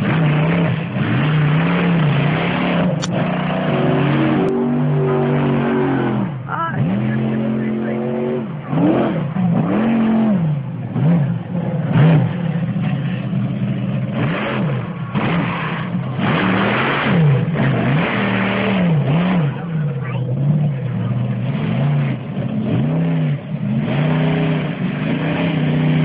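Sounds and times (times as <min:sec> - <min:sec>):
monster truck engine revving: 0:00.0 - 0:26.0.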